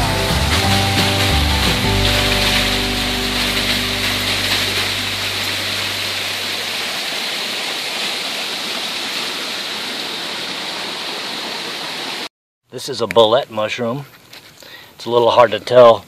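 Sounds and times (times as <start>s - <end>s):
background music: 0.0s - 6.9s
water splashing over rocks: 0.0s - 12.3s.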